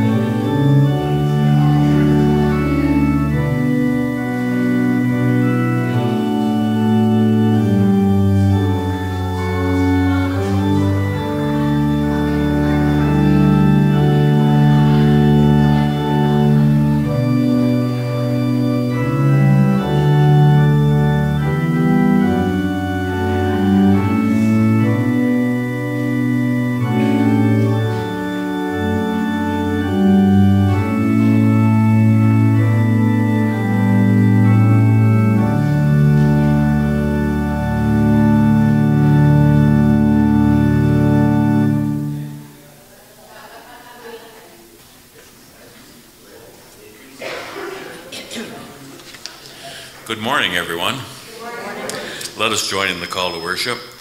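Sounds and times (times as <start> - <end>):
deep held organ bass: 0.0 - 42.6
organ playing sustained chords: 0.0 - 54.0.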